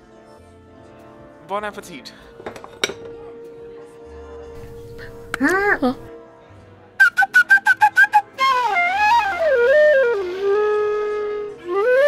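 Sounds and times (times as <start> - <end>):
flute playing melody: 7.0 - 12.0.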